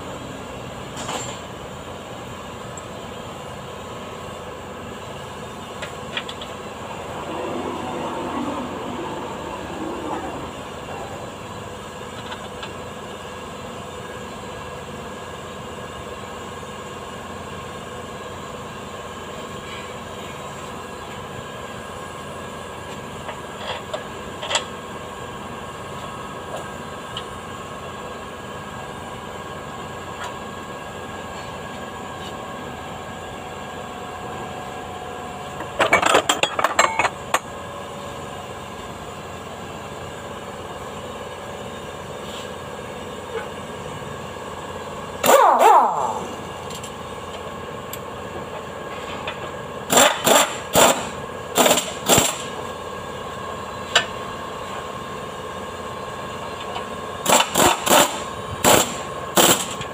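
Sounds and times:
machine hum: 0:03.8 - 0:14.3.

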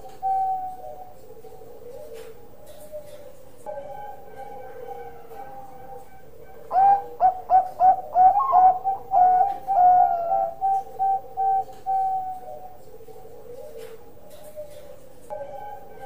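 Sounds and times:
dove cooing: 0:00.0 - 0:16.0.

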